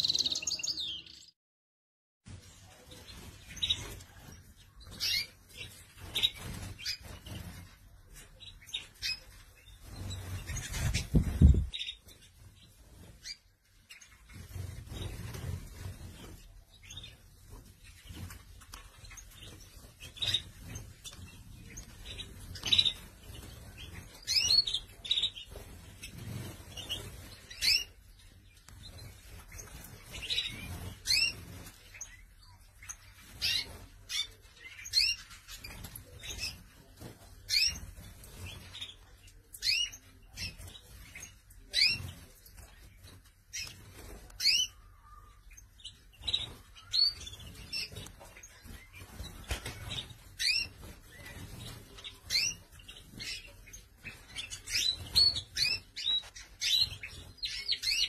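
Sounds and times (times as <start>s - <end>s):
canaries chirping: 0.0s - 1.4s, 2.3s - 58.0s.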